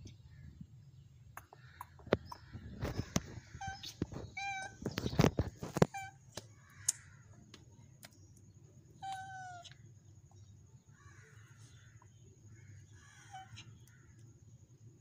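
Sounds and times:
cat meowing: 3.6s - 5.0s, 9.0s - 9.7s.

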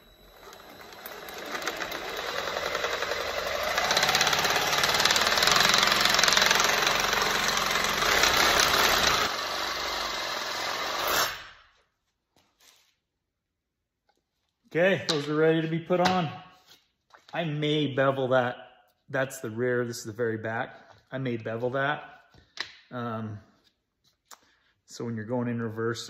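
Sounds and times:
power saw cutting plastic: 0.0s - 11.6s.

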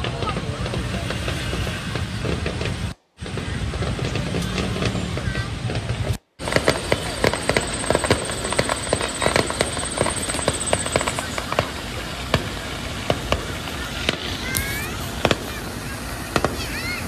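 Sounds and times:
fireworks bangs and crackles: 0.0s - 17.0s
steady rumble: 0.0s - 17.0s.

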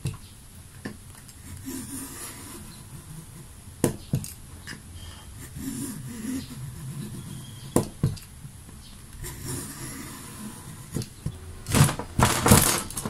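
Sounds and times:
plastic cutter scraping: 9.2s - 13.0s
plastic cracking: 11.0s - 13.0s.

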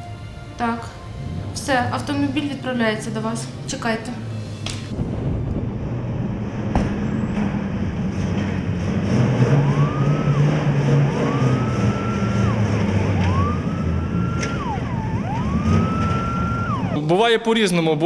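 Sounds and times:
fire engine running: 0.0s - 18.0s
wailing siren: 8.7s - 17.2s.

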